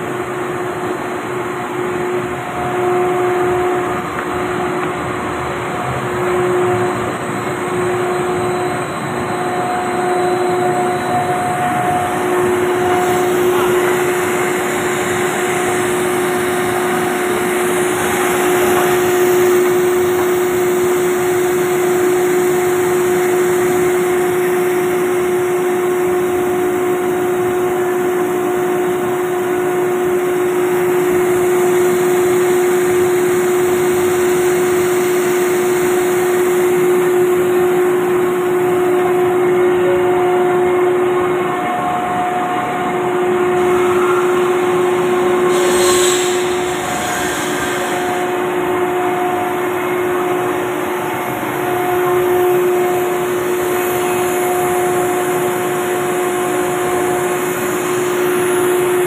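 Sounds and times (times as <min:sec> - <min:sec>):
extrusion machine humming: 0:00.0 - 0:59.0
dense rushing noise: 0:44.8 - 0:50.5.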